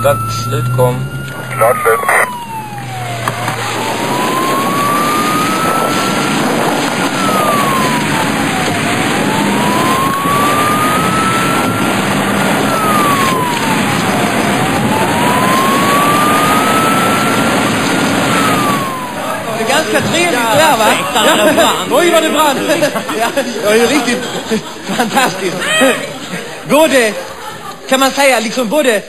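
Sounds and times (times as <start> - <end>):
police siren wailing: 0.0 - 22.7
steady rushing noise: 0.0 - 22.9.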